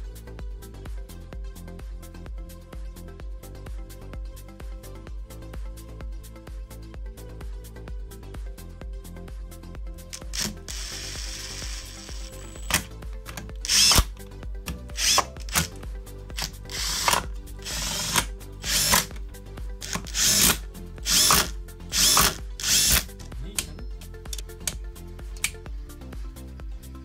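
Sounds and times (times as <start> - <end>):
cordless drill-driver spurts: 10.2 - 14.2, 14.9 - 19.2, 19.8 - 23.2.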